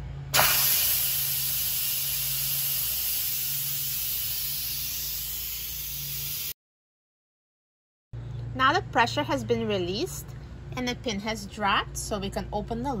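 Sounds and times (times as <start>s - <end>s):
pressure cooker venting steam: 0.3s - 6.6s.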